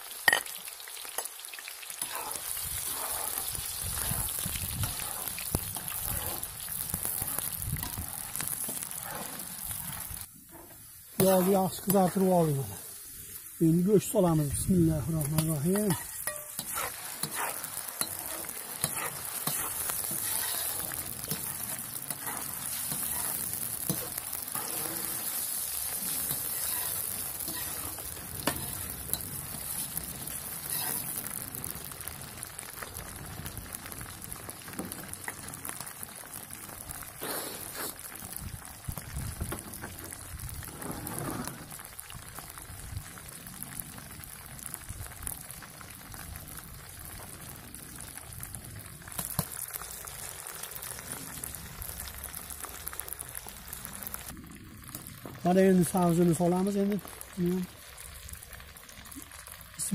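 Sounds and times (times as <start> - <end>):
meat sizzling in hot oil: 0.0 - 59.9
stirring scrapes: 2.0 - 12.2, 15.3 - 31.4.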